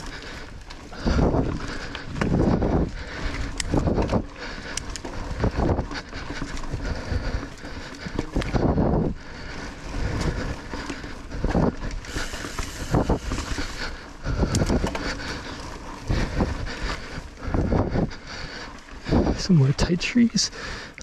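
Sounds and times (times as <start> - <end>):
bike tyres rolling on dirt: 0.0 - 21.0
wind on microphone: 0.9 - 4.4, 5.2 - 9.2, 11.3 - 15.0, 15.9 - 18.2, 19.0 - 19.9
bike thumps and rattles: 1.0 - 9.1, 9.9 - 17.0.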